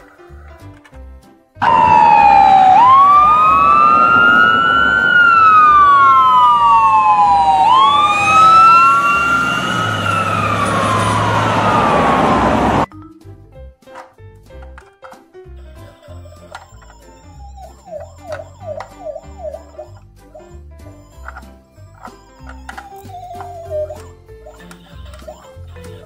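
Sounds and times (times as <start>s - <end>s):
ambulance siren wailing: 1.6s - 12.9s, 16.5s - 20.0s, 22.0s - 24.1s.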